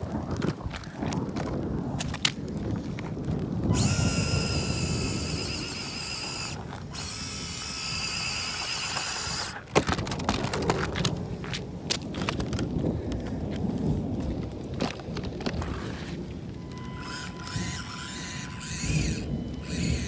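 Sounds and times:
tires crackling over dirt: 0:00.0 - 0:20.0
electric motor whining: 0:03.7 - 0:09.6, 0:16.6 - 0:20.0.

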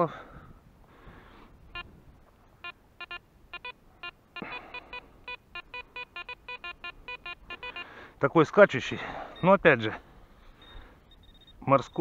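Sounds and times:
metal detector beeps: 0:02.6 - 0:08.0, 0:09.0 - 0:09.7, 0:10.5 - 0:12.0.

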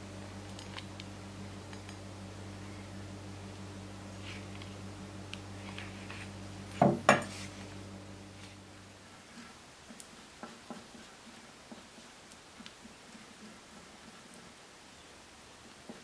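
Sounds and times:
low hum: 0:00.0 - 0:09.2
stick stirring thick paste: 0:05.4 - 0:14.6.

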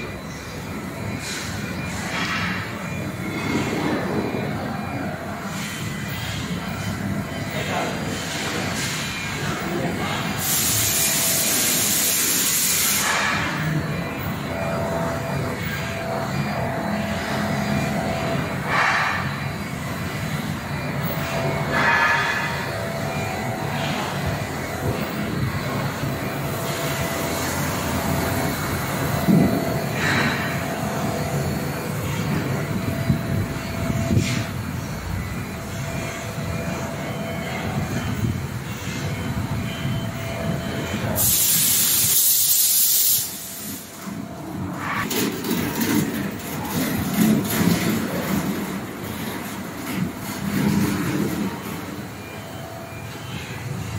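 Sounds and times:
chiller mechanical hum: 0:00.0 - 0:53.9
hiss of escaping gas: 0:41.2 - 0:43.9.

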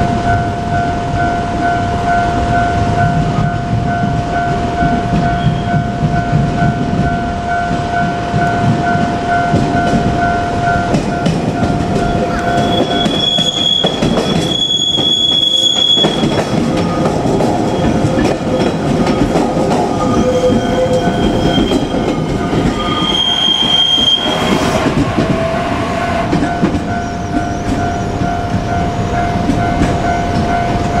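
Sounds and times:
train wheels rumbling: 0:00.0 - 0:31.0
high-pitched wheel squeal: 0:12.1 - 0:17.0, 0:19.9 - 0:28.2.

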